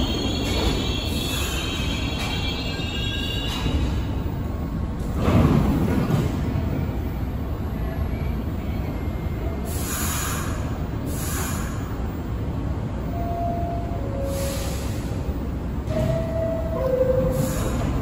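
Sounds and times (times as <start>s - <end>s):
subway train rumble: 0.0s - 18.0s.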